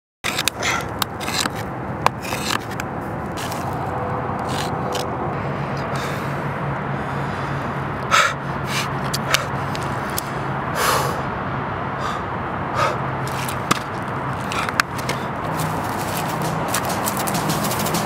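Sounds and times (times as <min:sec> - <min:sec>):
steady low hum: 0:00.5 - 0:18.0
person huffing breath: 0:05.3 - 0:09.7, 0:10.3 - 0:11.3, 0:12.0 - 0:13.2.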